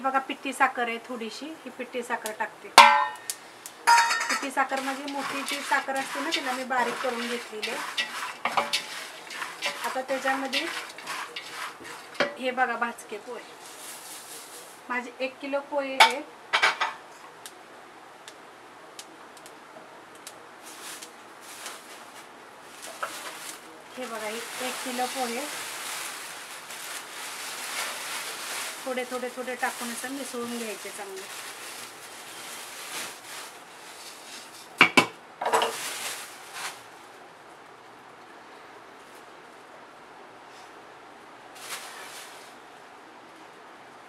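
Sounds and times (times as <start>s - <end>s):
dry flakes rustling in a pot: 2.2s - 15.1s, 20.2s - 34.8s, 35.4s - 37.2s, 41.5s - 42.8s
wooden spoon knocking on pot: 2.8s - 3.2s, 3.9s - 12.4s.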